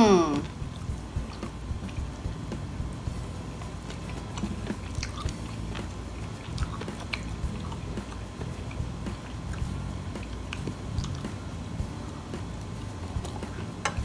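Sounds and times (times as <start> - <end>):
person chewing food: 0.4 - 2.4, 3.1 - 11.4
wet mouth clicks: 3.6 - 11.4.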